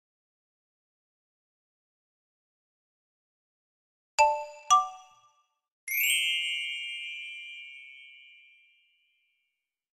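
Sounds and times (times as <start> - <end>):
bright shimmering chime: 5.9 - 9.1.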